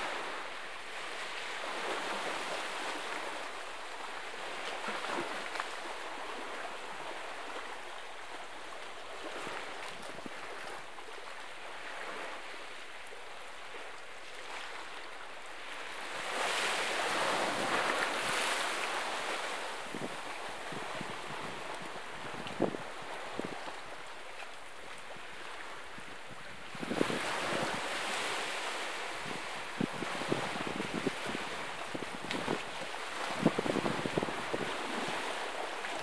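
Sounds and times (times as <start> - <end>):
wind: 0.0 - 36.0
waves washing against rocks: 26.8 - 36.0.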